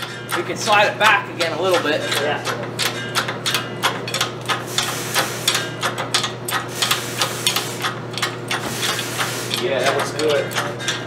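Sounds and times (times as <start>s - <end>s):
steady low hum: 0.0s - 11.0s
metallic clicks and knocks: 1.4s - 4.6s, 9.5s - 11.0s.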